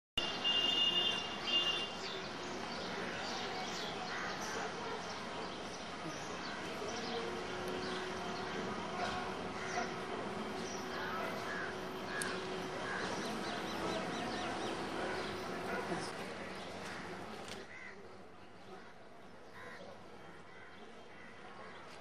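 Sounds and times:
busy outdoor background: 0:00.2 - 0:22.0
crows cawing: 0:10.9 - 0:13.3, 0:17.7 - 0:18.0.

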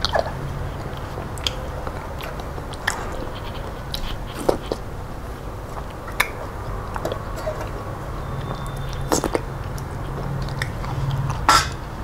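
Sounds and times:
chewing and wet mouth noises: 0:00.0 - 0:12.0
fingers wiping a metal plate: 0:02.3 - 0:05.2.

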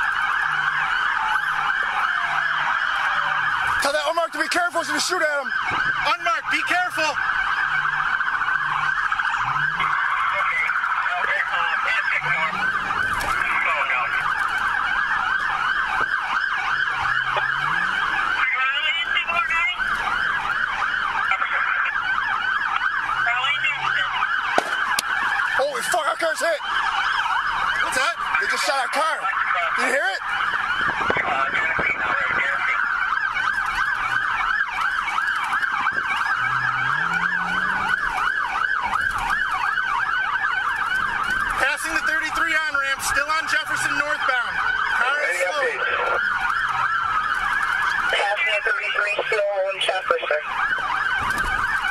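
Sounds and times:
police siren yelping: 0:00.0 - 0:51.9
car engine revving: 0:07.4 - 0:10.2, 0:16.5 - 0:18.4, 0:35.4 - 0:39.1.

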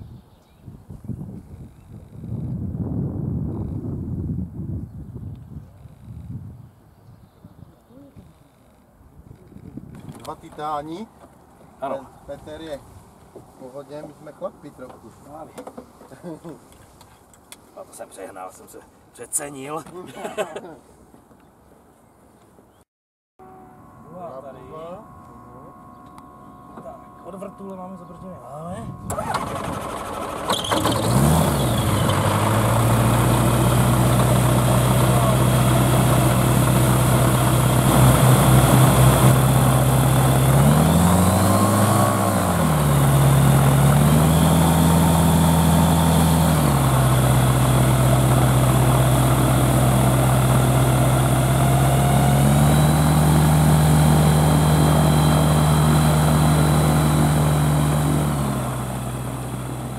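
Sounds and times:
gyrocopter engine idling and revving: 0:23.4 - 0:59.9.

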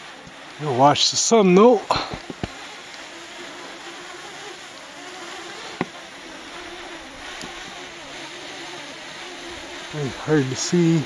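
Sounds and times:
drone propellers humming: 0:00.0 - 0:11.0.

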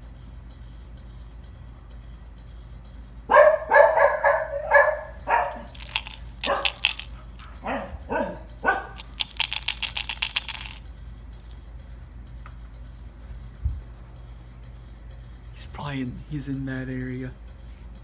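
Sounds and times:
dog barking: 0:03.3 - 0:05.7, 0:06.4 - 0:06.8, 0:07.4 - 0:09.0
rapid sharp clicking: 0:09.0 - 0:10.8.

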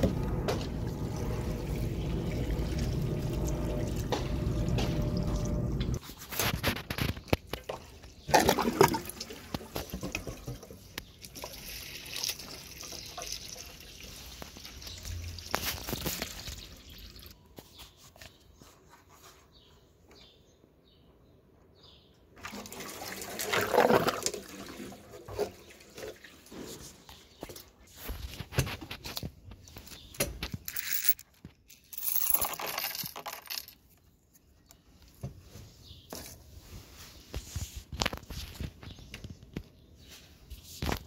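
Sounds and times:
water rushing through pipes: 0:00.0 - 0:06.0, 0:07.6 - 0:17.4, 0:22.4 - 0:27.0.

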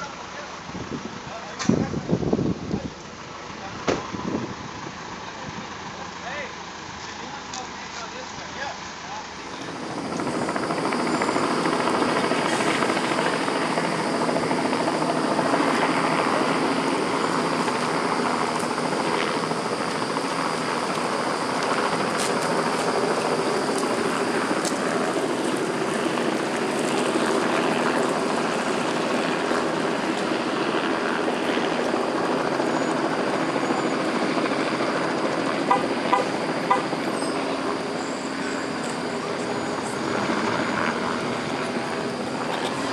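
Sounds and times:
wind noise: 0:00.6 - 0:03.0, 0:03.7 - 0:05.8
engine running: 0:09.4 - 0:42.9.

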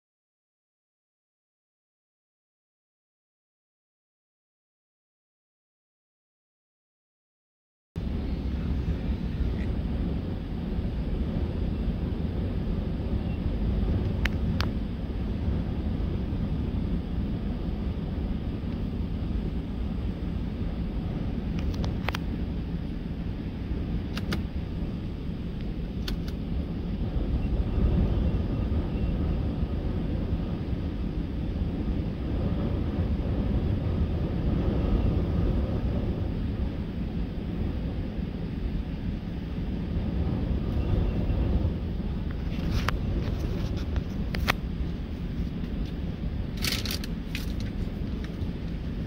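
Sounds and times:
sharp clicks: 0:24.1 - 0:24.5, 0:26.0 - 0:26.4
car driving on gravel: 0:41.5 - 0:49.0.

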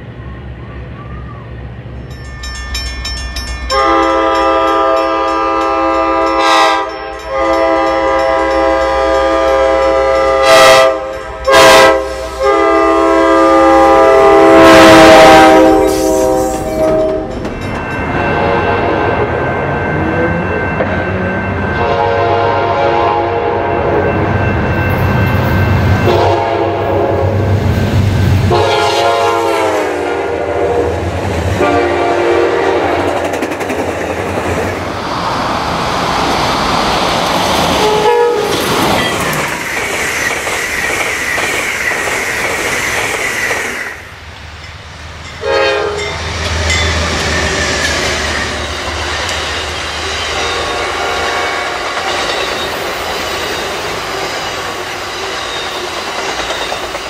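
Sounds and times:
train rumble and wheel clatter: 0:00.0 - 0:57.0
train horn blasts: 0:03.7 - 0:17.4, 0:21.7 - 0:24.2, 0:26.0 - 0:27.5, 0:28.4 - 0:33.1, 0:37.8 - 0:38.6, 0:45.4 - 0:46.2, 0:50.3 - 0:52.2.

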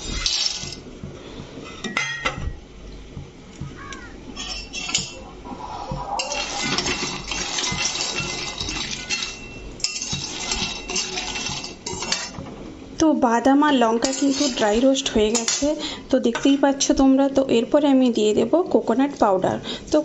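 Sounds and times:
metal spatula scraping wok: 0:00.0 - 0:02.0, 0:04.4 - 0:12.4, 0:13.9 - 0:15.8.

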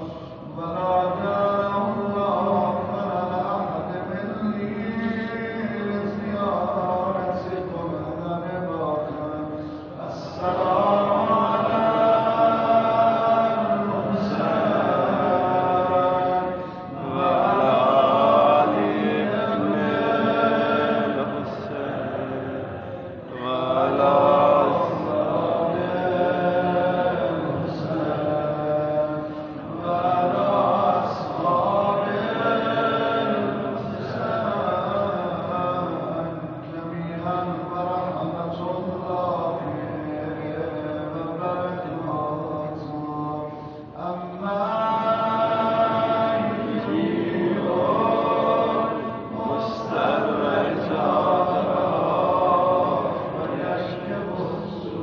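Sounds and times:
man chanting over a microphone: 0:00.0 - 0:55.0.

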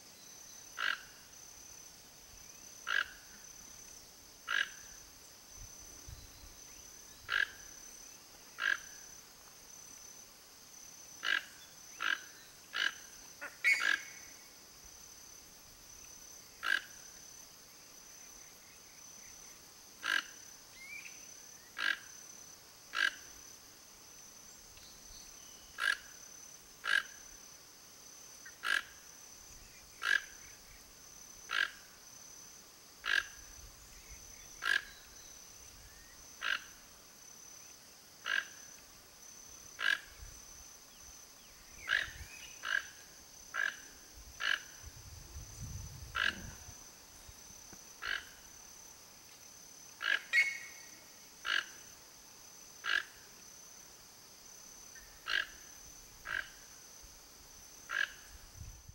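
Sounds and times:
toucan croaking calls: 0:00.8 - 0:01.2, 0:02.8 - 0:03.4, 0:04.4 - 0:04.9, 0:07.2 - 0:07.8, 0:08.6 - 0:09.0, 0:11.2 - 0:14.3, 0:16.6 - 0:17.0, 0:20.0 - 0:21.1, 0:21.7 - 0:22.1, 0:22.9 - 0:23.3, 0:25.7 - 0:26.2, 0:26.8 - 0:27.2, 0:28.4 - 0:29.0, 0:29.9 - 0:30.6, 0:31.5 - 0:31.9, 0:33.0 - 0:33.5, 0:34.4 - 0:35.1, 0:36.4 - 0:36.8, 0:38.2 - 0:38.6, 0:39.8 - 0:40.3, 0:41.8 - 0:44.9, 0:46.0 - 0:46.8, 0:48.0 - 0:48.5, 0:50.0 - 0:51.9, 0:52.8 - 0:53.2, 0:55.0 - 0:55.6, 0:56.2 - 0:56.6, 0:57.9 - 0:58.4.

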